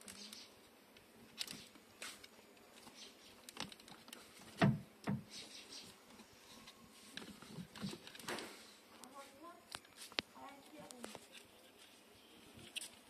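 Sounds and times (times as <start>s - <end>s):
plastic clicks and rustles: 1.0s - 4.8s.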